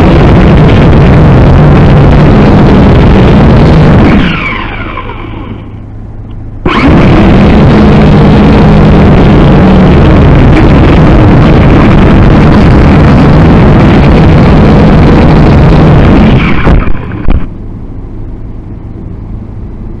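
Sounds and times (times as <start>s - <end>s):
drone motors and propellers whirring: 0.0s - 20.0s
drone knocks landing: 6.6s - 17.5s.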